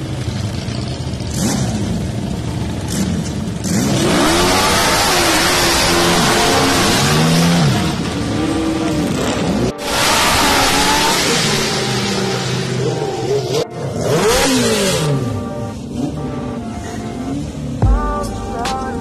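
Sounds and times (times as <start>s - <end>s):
lawn mower engines revving: 0.0s - 17.8s.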